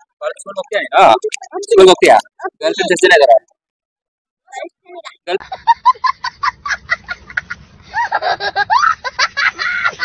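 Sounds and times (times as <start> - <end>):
voices talking and laughing: 4.5 - 10.0
person laughing in bursts: 5.4 - 10.0.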